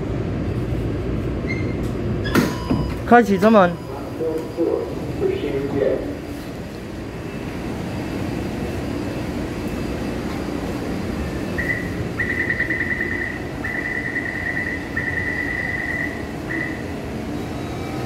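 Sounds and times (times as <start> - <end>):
train humming at platform: 0.0 - 18.0
rapid high beeping: 11.4 - 17.0.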